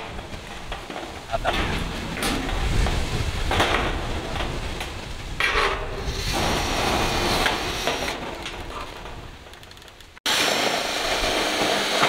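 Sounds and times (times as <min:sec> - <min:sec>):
metal sheets scraping on steel frame: 0:00.0 - 0:09.6.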